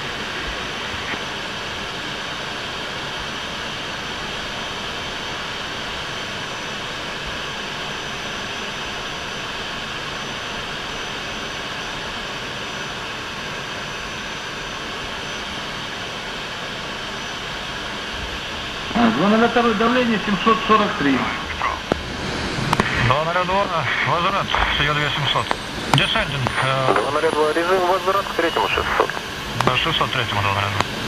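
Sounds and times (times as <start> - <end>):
faint high whine: 0.0 - 31.0
jet fighter engine rush: 15.7 - 31.0.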